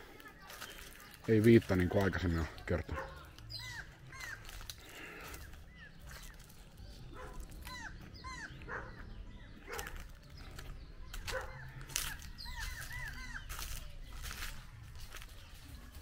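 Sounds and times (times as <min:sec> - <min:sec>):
steps in dry leaf litter: 0:00.0 - 0:08.6, 0:09.5 - 0:16.0
high arching animal calls: 0:03.0 - 0:06.4, 0:07.1 - 0:10.1, 0:11.2 - 0:13.8.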